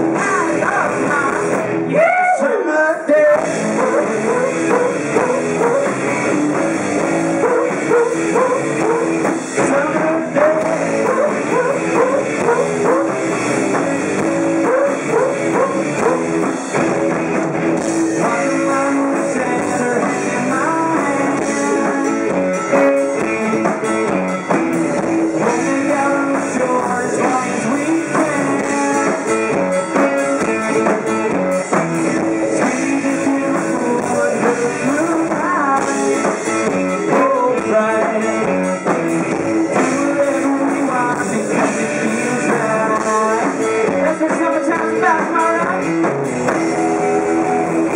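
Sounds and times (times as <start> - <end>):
drums: 0.0 - 47.9
electric guitar: 0.0 - 47.9
rock band playing: 0.0 - 47.9.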